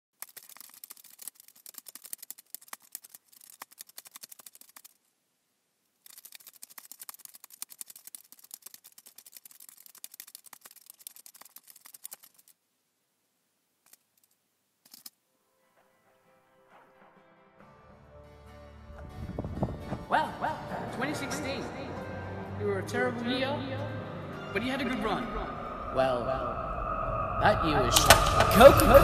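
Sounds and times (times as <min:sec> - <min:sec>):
computer keyboard typing: 0:00.2 - 0:05.0, 0:06.1 - 0:12.6.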